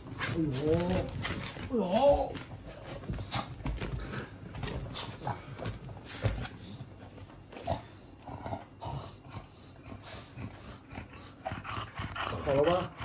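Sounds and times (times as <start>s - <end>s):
dogs moving on a bed: 0.0s - 8.0s.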